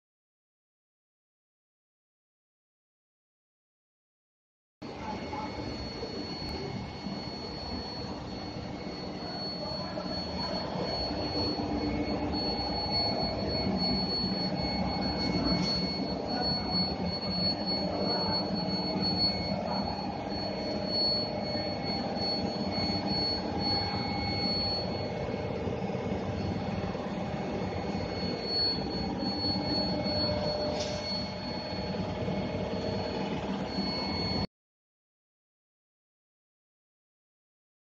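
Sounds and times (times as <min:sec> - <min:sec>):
high-pitched machine whine: 0:04.8 - 0:34.5
low machine rumble: 0:04.9 - 0:34.5.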